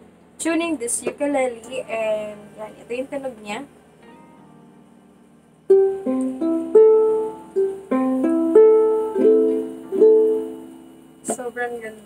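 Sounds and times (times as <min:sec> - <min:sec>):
ukulele fingerpicked notes: 0:04.0 - 0:11.4.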